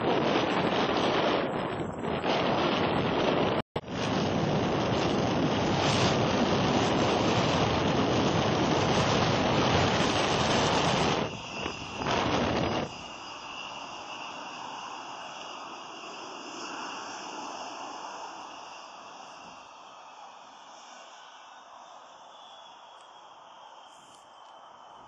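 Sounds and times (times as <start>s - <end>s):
wind buffeting microphone: 0.0s - 13.2s.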